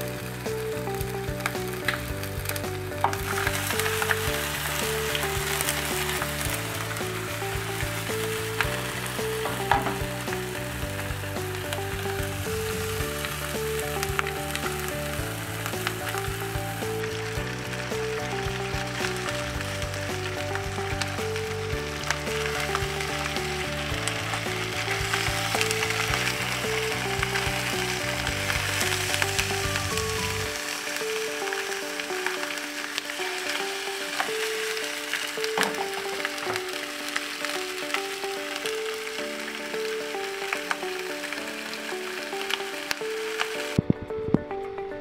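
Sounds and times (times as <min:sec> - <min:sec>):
background music with bass: 0:00.0 - 0:31.1
fish sizzling in a pan: 0:00.0 - 0:43.8
oil crackles and pops: 0:00.0 - 0:44.6.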